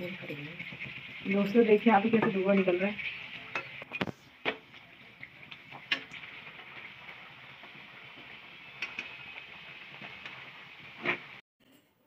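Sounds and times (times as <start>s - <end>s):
food sizzling in hot oil: 0.0s - 11.4s.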